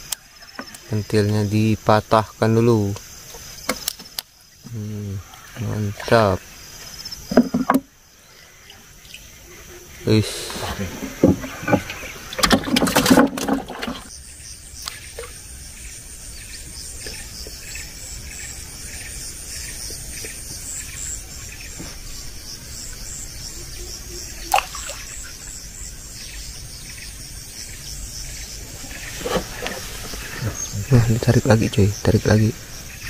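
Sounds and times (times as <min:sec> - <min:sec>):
insects trilling: 0:00.0 - 0:33.0
sharp knocks: 0:07.3 - 0:07.9.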